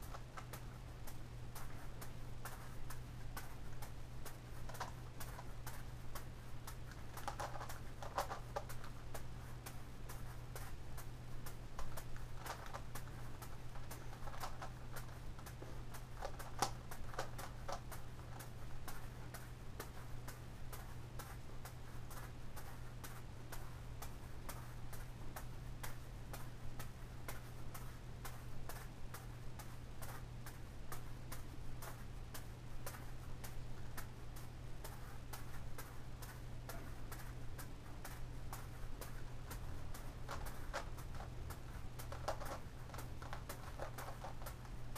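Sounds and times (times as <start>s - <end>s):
juggling balls slapping hands: 0.0s - 44.9s
plastic puzzle clicking: 42.0s - 44.5s.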